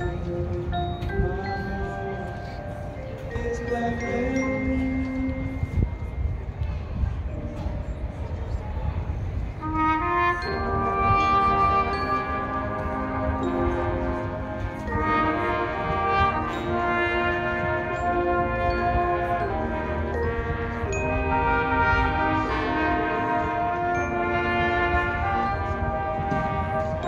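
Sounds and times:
marching band brass chords: 9.6 - 27.0.

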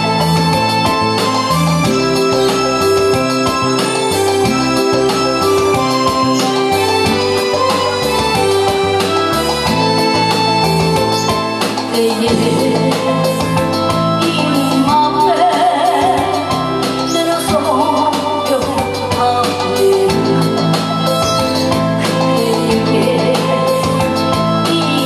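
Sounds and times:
amplified backing music: 0.0 - 25.0
woman singing into microphone: 11.8 - 25.0.

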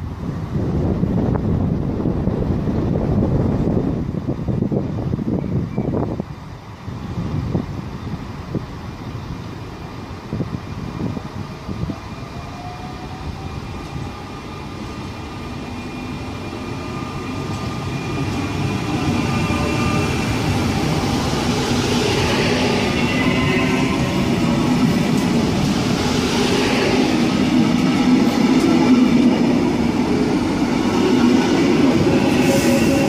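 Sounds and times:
electric train running past: 0.0 - 33.0
low train rumble: 0.0 - 33.0
high whining tones: 15.5 - 29.3.

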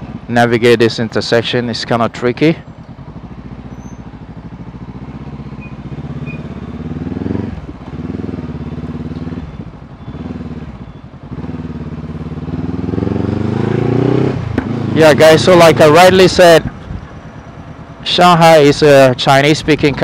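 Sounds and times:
motorcycle engine revving: 2.7 - 18.2.

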